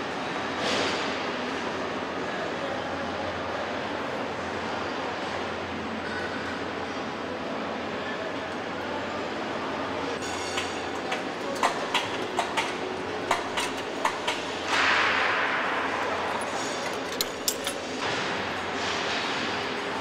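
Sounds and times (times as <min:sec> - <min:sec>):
steady factory hum: 0:00.0 - 0:20.0
metal tools clicking and knocking: 0:10.2 - 0:14.4, 0:16.2 - 0:18.1.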